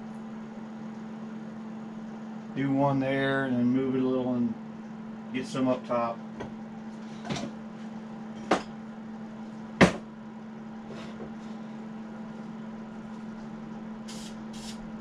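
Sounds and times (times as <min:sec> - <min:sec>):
steady low hum: 0:00.0 - 0:15.0
knocks on wooden workbench: 0:09.8 - 0:10.1.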